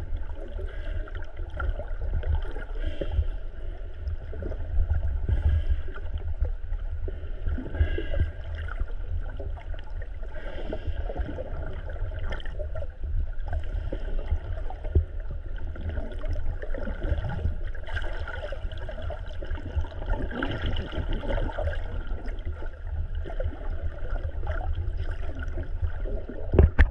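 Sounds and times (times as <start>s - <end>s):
underwater rumble of moving water: 0.0s - 26.9s
faint underwater clicks: 26.2s - 26.9s.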